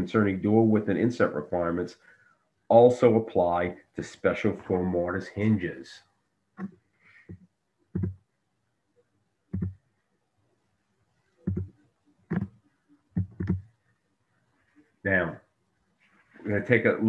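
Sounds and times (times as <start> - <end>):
computer mouse clicks: 13.2 - 13.6.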